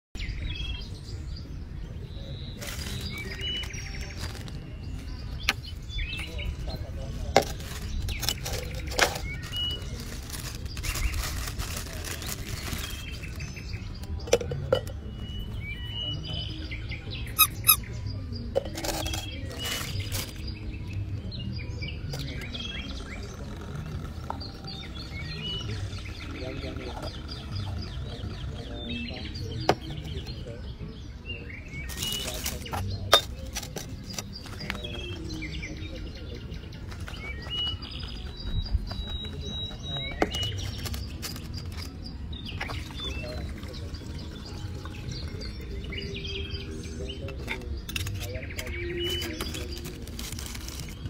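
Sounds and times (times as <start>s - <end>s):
small birds chirping: 0.2s - 51.0s
rustling noise: 7.4s - 13.5s, 49.1s - 51.0s.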